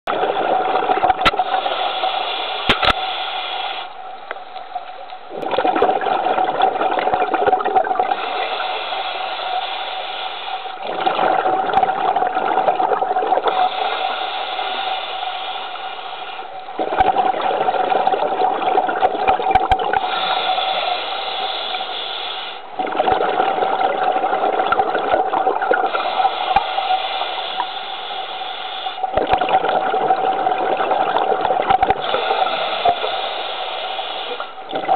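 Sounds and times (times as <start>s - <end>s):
regulator hissing inhale: 1.4s - 4.0s, 8.2s - 10.8s, 13.5s - 16.6s, 20.0s - 22.7s, 25.9s - 29.1s, 32.0s - 34.6s
regulator bubbling exhale: 5.3s - 34.9s.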